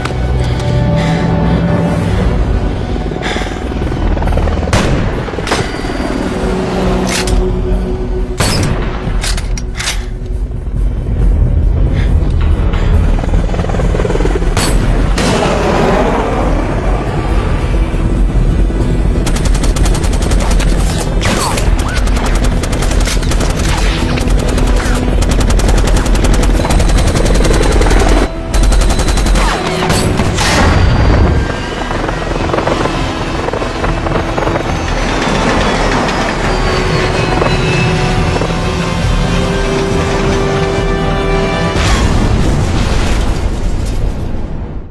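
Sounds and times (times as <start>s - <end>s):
helicopter rotor noise: 0.5s - 7.7s, 12.0s - 15.2s, 16.6s - 41.1s
machine-gun fire: 19.2s - 29.8s.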